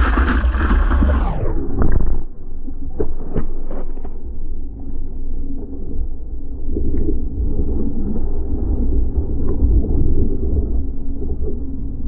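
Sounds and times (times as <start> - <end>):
muffled rush of water: 0.0 - 3.3
wind on camera: 0.0 - 12.0.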